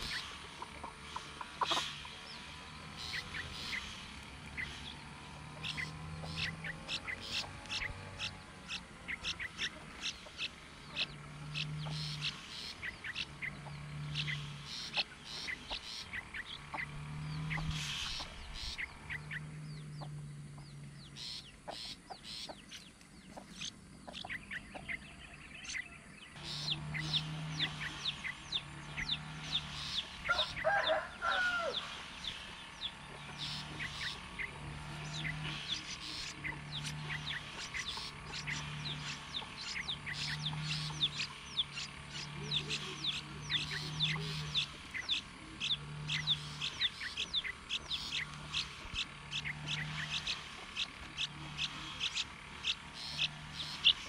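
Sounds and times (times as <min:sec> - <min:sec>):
rising and falling bird call: 0:00.0 - 0:54.0
high bird chirps: 0:04.5 - 0:54.0
deep hooting bird call: 0:24.1 - 0:54.0.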